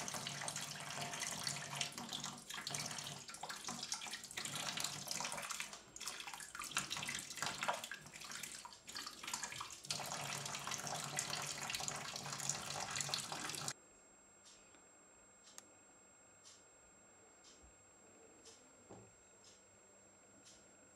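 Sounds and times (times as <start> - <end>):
water splashing into steel sink: 0.0 - 13.7.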